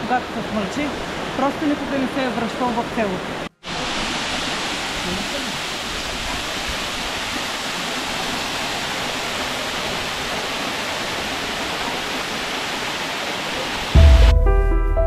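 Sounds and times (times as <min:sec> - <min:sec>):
waterfall rushing: 0:00.0 - 0:14.5
music with deep bass: 0:14.0 - 0:15.0.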